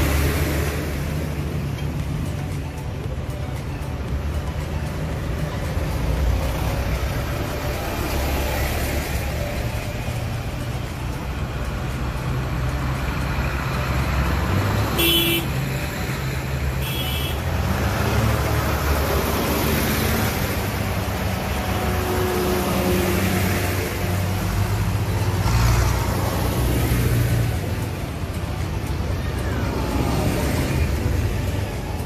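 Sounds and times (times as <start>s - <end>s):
tractor engines droning: 0.0s - 32.0s
horn toots: 15.0s - 15.5s.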